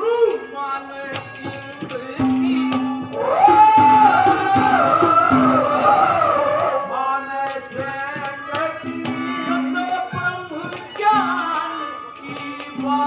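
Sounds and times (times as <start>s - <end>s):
man singing long high note: 0.0s - 13.0s
drum strokes: 1.2s - 13.0s.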